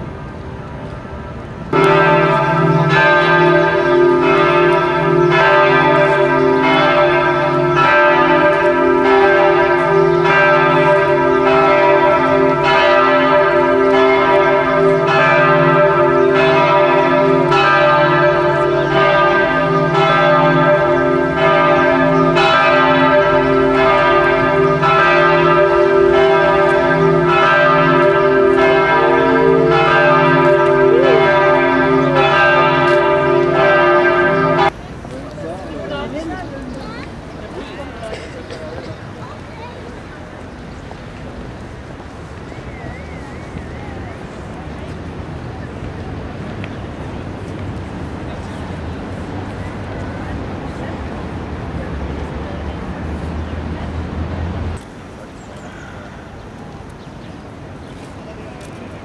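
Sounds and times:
church bells ringing: 1.7s - 34.8s.

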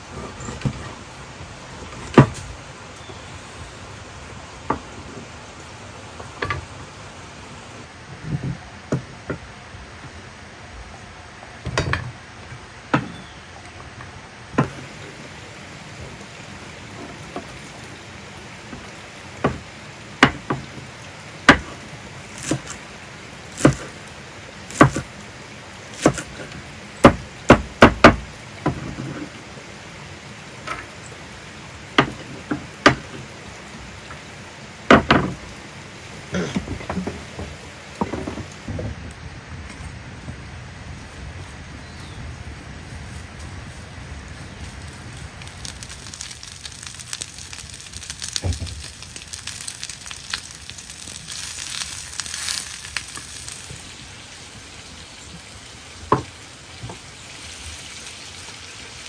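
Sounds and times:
knife chopping on wooden board: 24.7s - 25.0s, 26.0s - 26.3s.

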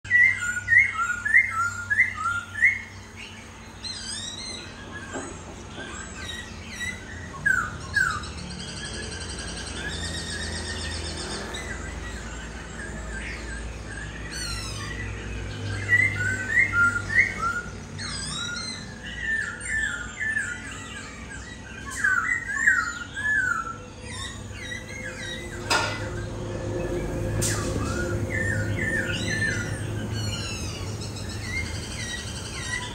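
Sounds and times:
bird whistled song: 0.0s - 32.9s
fast high bird trill: 0.1s - 32.9s
steady low hum: 23.7s - 32.9s.

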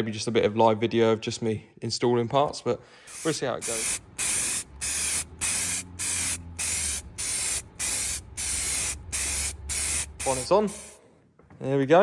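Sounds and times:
spray paint can hissing: 3.1s - 11.0s.

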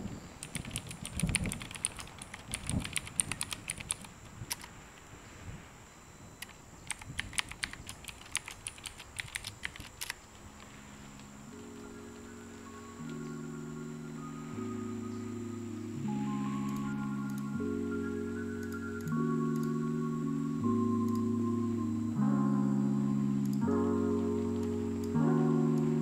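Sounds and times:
typing on a keyboard: 0.4s - 4.7s, 6.4s - 10.8s.

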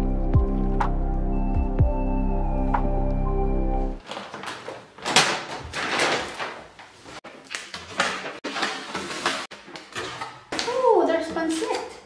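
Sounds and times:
paper bags rustling: 4.0s - 11.7s.

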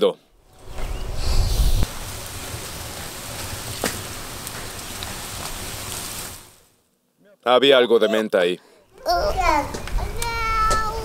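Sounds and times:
water boiling hard: 0.5s - 6.7s.

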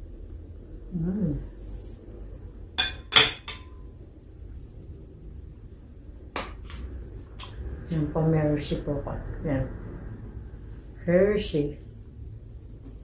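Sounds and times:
low hum of voice: 0.6s - 2.0s
tableware clinking: 2.8s - 3.9s.

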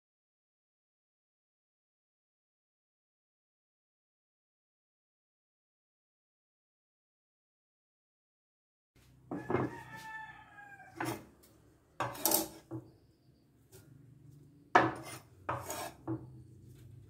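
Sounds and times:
knife scraping on cutting board: 10.9s - 11.4s, 12.0s - 12.9s, 14.8s - 16.9s.

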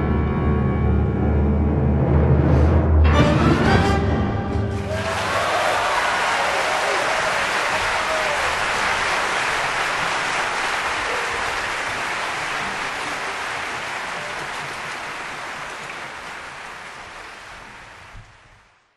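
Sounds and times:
audience applauding: 4.7s - 18.9s.

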